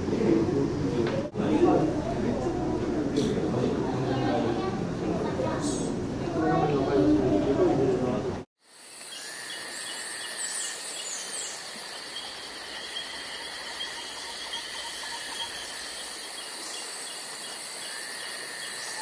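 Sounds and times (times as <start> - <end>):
insects chirping and trilling: 8.6 - 19.0.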